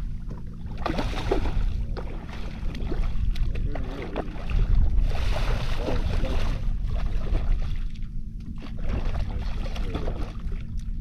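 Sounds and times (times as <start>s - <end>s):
wind rumble on microphone: 0.0s - 11.0s
fish thrashing and splashing: 0.7s - 7.9s.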